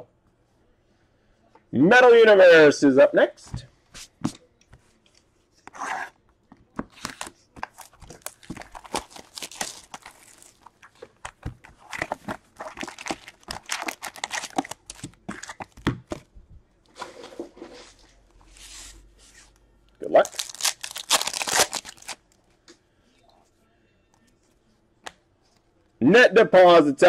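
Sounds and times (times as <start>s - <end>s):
wrappers tearing and crinkling: 7.0s - 15.7s, 20.2s - 22.3s.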